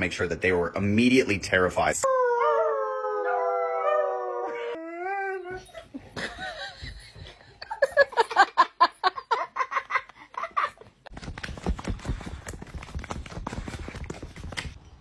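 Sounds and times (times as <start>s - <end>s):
rustling and scratching: 11.1s - 15.0s.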